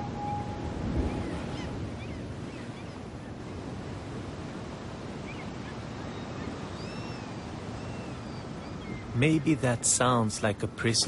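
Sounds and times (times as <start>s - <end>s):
held musical note: 0.0s - 1.5s
sea surf: 0.0s - 11.0s
wind: 0.0s - 11.0s.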